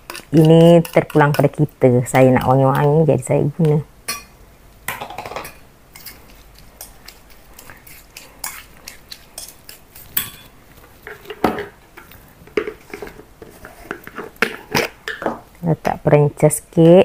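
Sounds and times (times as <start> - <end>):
spoon scraping metal bowl: 0.0 - 1.6, 5.9 - 11.4.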